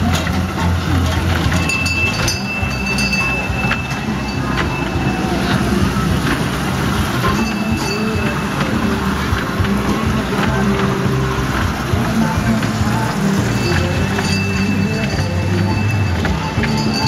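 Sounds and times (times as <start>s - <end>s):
ride train rumbling on rails: 0.0s - 17.0s
high squeal: 1.4s - 9.2s, 12.9s - 17.0s.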